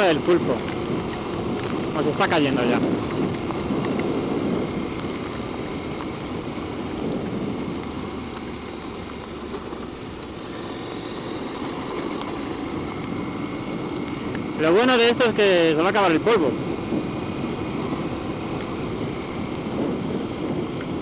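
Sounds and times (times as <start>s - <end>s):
wind noise: 0.0s - 10.2s, 10.8s - 21.0s
tyres on gravel: 0.0s - 15.7s
motorcycle engine running: 0.0s - 21.0s.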